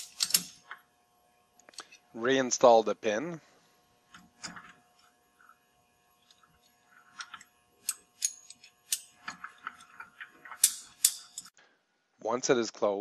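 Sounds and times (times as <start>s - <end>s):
steel chain clinking: 0.0s - 0.8s, 7.2s - 11.5s.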